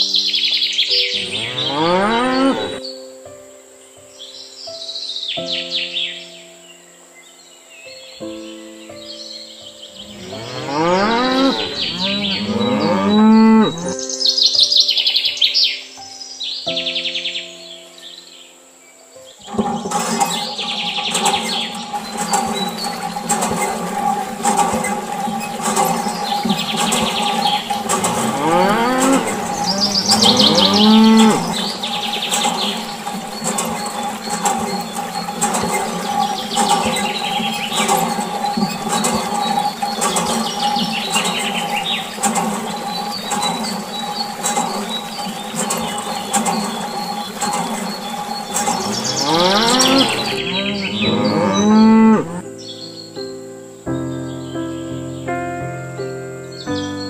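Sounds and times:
bird chirping in trills: 0.0 - 57.0
cow mooing: 1.2 - 2.8, 10.1 - 13.9, 28.0 - 31.6, 48.8 - 52.4.

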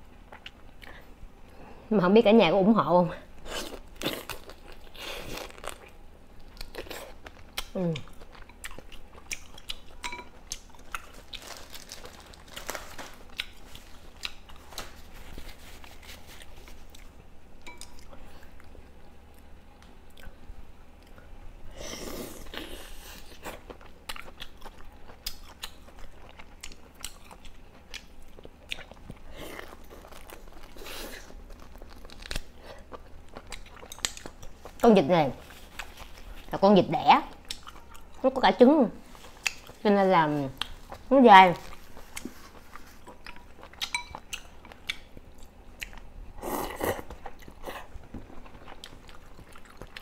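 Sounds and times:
chewing and biting meat: 23.5 - 34.8, 47.1 - 50.0.

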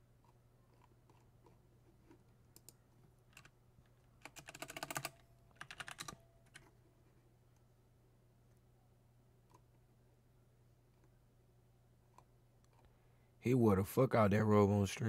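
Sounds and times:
faint low hum: 0.0 - 15.0
typing on a keyboard: 2.5 - 3.6, 4.2 - 6.7.

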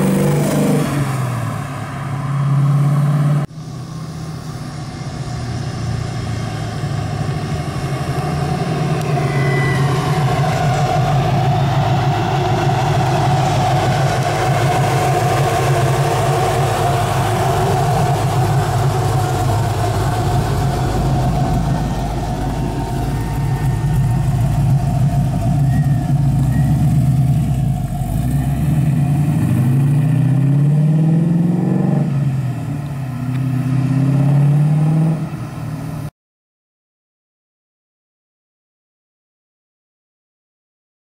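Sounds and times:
car engine accelerating: 0.0 - 36.1.

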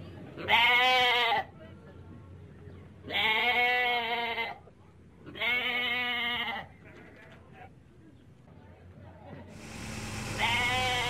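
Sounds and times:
sheep bleating: 10.2 - 11.0.

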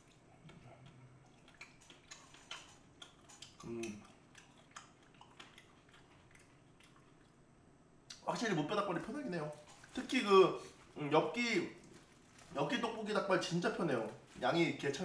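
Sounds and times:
person chewing and sucking: 0.0 - 7.4.

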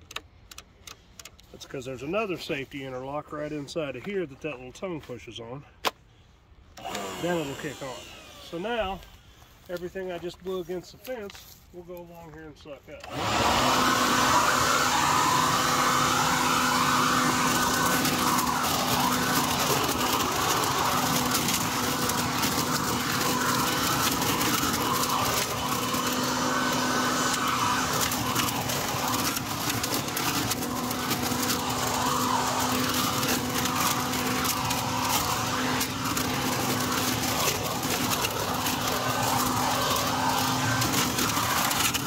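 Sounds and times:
leaf vacuum motor and rushing air: 6.7 - 10.1, 12.9 - 42.0
leaves crackling through tube: 13.7 - 42.0.

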